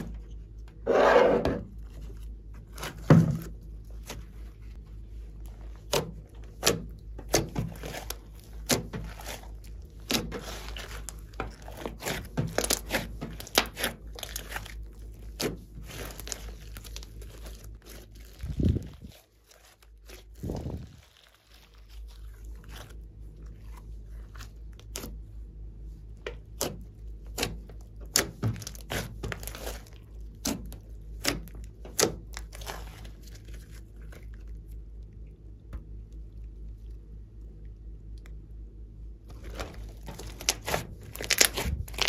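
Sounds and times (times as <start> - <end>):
slime popping and crackling: 5.8 - 25.1, 26.6 - 34.6, 39.3 - 42.0.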